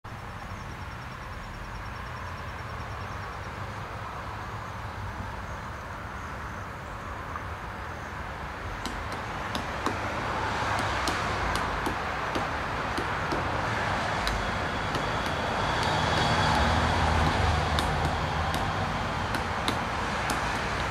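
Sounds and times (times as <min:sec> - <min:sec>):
road traffic rumble: 0:00.0 - 0:20.9
woodpecker tapping wood: 0:08.8 - 0:20.9.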